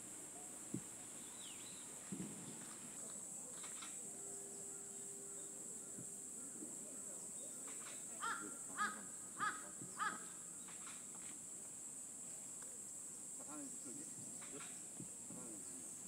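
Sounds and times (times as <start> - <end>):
steady high hiss: 0.0 - 16.0
harsh cawing bird calls: 4.5 - 11.0.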